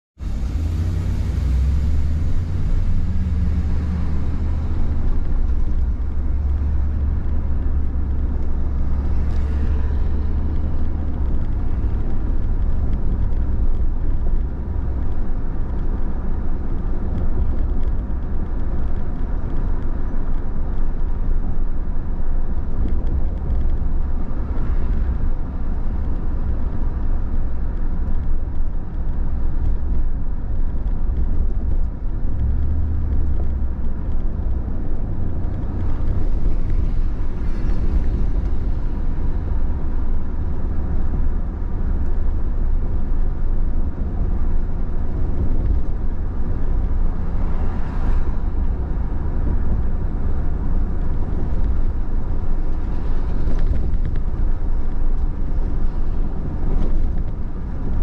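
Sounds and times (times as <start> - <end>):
car tyre and engine rumble: 0.1 - 58.0
road hiss: 0.2 - 5.5.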